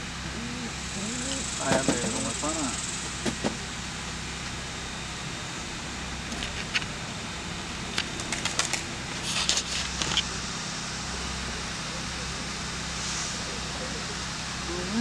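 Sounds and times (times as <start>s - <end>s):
low outdoor hum: 0.0s - 15.0s.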